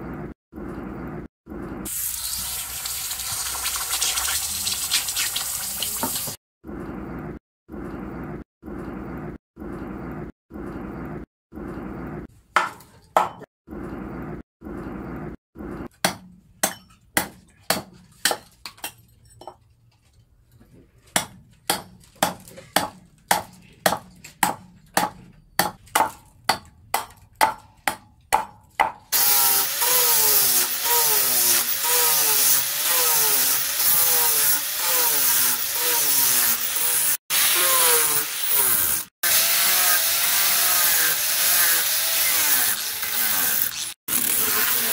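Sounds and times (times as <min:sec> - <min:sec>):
hot metal hissing in water: 0:01.9 - 0:06.4
angle grinder whining: 0:29.2 - 0:44.9.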